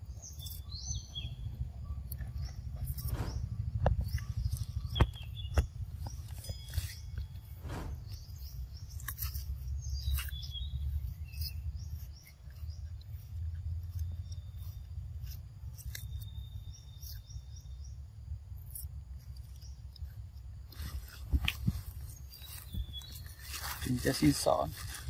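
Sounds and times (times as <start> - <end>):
low rumble: 1.0 - 10.0
monkey crunching cucumber: 8.1 - 17.5.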